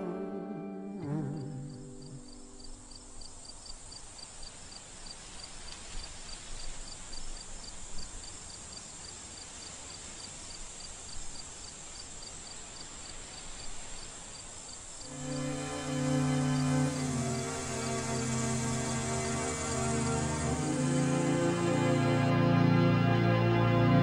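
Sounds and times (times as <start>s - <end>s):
music: 0.0s - 2.8s, 15.1s - 24.0s
cricket chirping: 1.1s - 22.1s
soft hiss: 1.2s - 22.8s.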